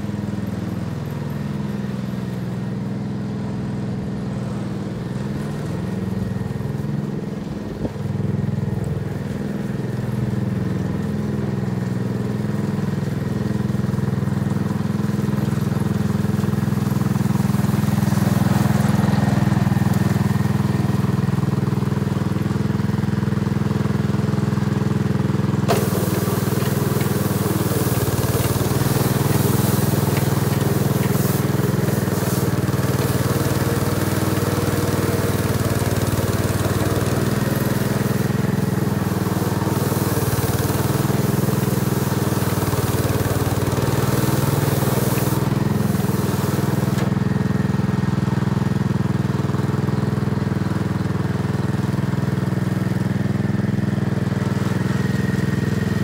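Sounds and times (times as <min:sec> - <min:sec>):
small tractor engine running: 0:00.0 - 0:56.0
rotary drum tearing into soil: 0:25.6 - 0:38.1.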